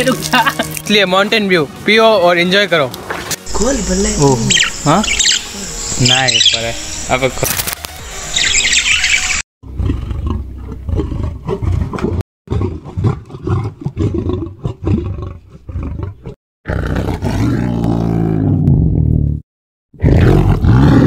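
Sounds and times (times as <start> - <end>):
big cat roaring and growling: 9.6 - 19.4, 20.0 - 21.0.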